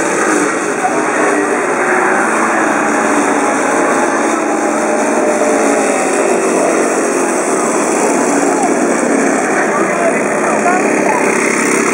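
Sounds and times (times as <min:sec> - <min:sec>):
small petrol engine running: 0:00.0 - 0:11.9.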